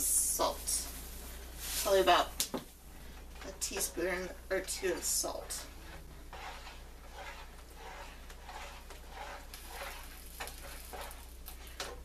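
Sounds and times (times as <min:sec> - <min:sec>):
utensil stirring in a metal skillet: 0:03.0 - 0:12.0.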